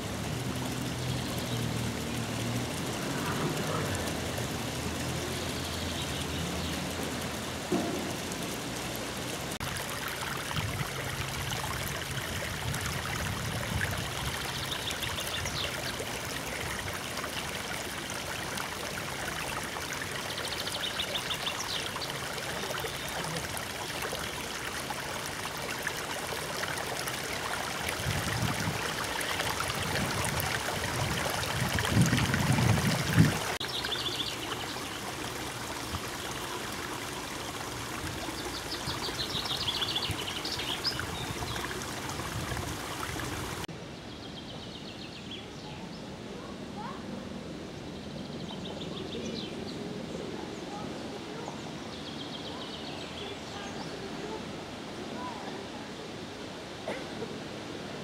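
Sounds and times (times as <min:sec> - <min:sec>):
running water: 0:00.0 - 0:43.8.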